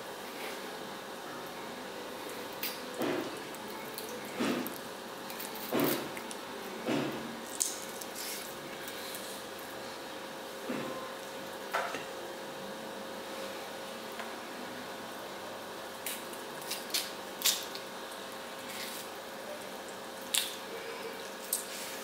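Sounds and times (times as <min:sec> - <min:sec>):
meat squishing: 0:02.5 - 0:09.8, 0:16.0 - 0:19.2.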